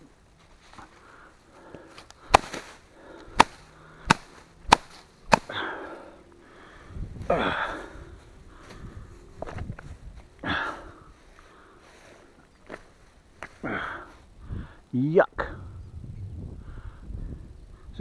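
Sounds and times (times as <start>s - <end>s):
rough rustling and handling: 0.0s - 14.4s
sharp smacks: 2.3s - 5.6s.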